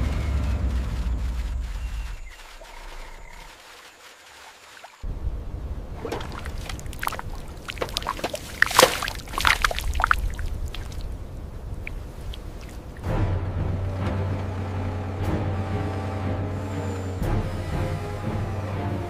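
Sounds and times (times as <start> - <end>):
water splashing: 2.3 - 13.1
water dripping: 5.8 - 13.1.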